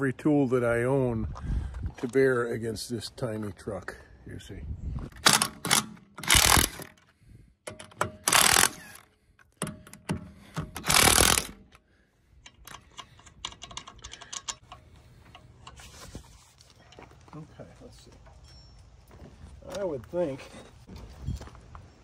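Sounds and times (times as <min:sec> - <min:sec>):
tools clattering and clicking: 0:05.2 - 0:11.8, 0:12.4 - 0:16.1.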